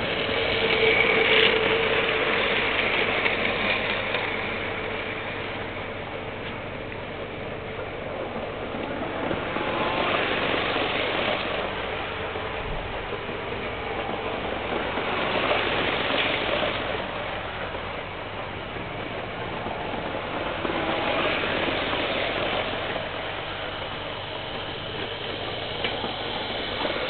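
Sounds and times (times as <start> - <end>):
model train motors whirring: 0.0 - 27.0
wheels rolling on rails: 0.0 - 27.0.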